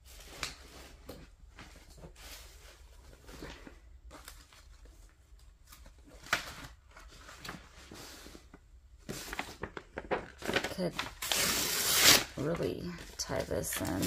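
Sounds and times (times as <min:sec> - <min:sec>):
paper rustling: 0:00.0 - 0:14.0.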